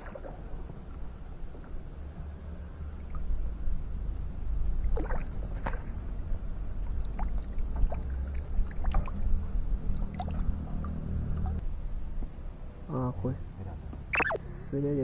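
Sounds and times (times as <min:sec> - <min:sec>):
lake water lapping: 0:00.0 - 0:00.7
small splashes and drips: 0:00.0 - 0:01.0, 0:04.7 - 0:11.6.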